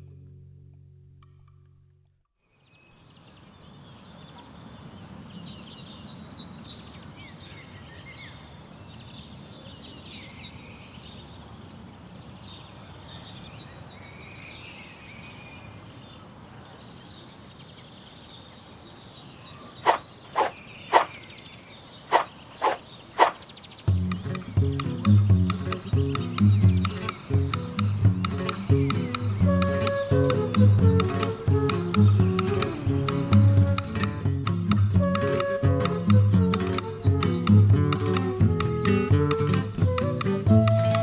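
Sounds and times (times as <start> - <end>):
birds chirping: 16.2 - 41.0.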